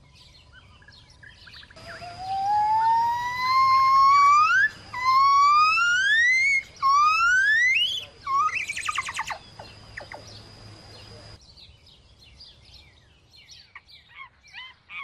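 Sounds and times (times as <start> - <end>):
animal whistled call: 1.8 - 9.4.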